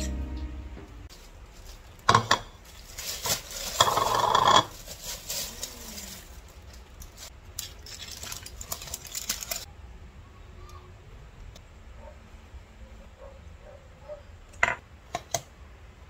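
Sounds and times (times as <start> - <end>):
bag and foil crinkling: 1.1 - 9.7
plastic bag rustling: 1.1 - 9.7.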